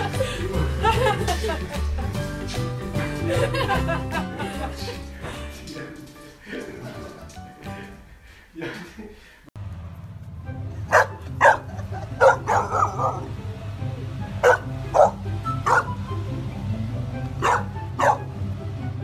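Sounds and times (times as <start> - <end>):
background music: 0.0 - 8.8, 9.6 - 19.0
puppy barking: 10.9 - 13.3, 14.4 - 16.0, 17.4 - 18.4.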